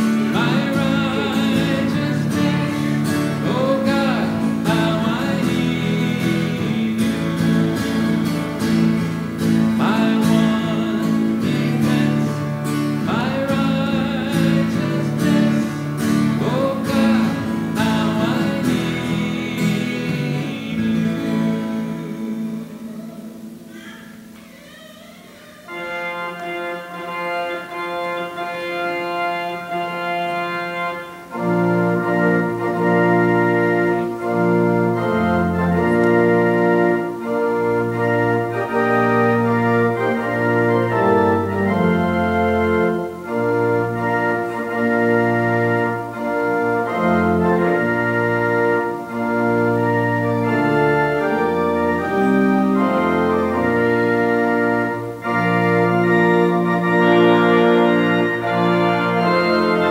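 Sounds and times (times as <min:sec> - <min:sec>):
deep organ bass line: 0:00.0 - 0:23.7, 0:25.7 - 0:59.9
church pipe organ chords: 0:00.0 - 0:59.9.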